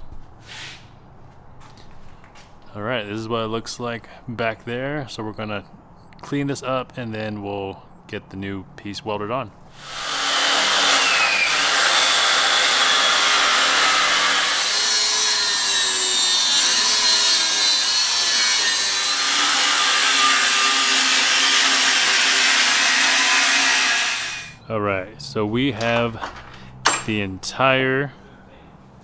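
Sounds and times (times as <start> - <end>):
angle grinder grinding steel: 9.8 - 24.6.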